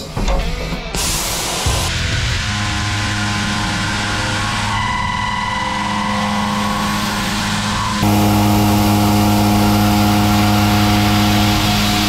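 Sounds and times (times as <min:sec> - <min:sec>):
milling machine cutting steel: 0:05.6 - 0:12.0.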